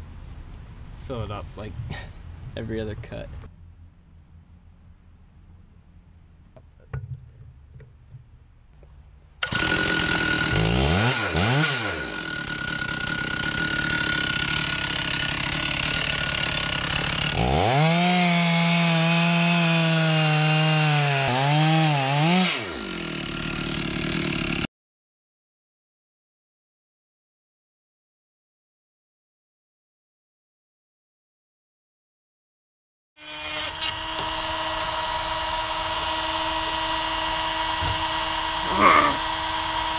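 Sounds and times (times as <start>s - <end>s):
chainsaw milling a log: 9.4s - 24.7s, 33.2s - 39.9s.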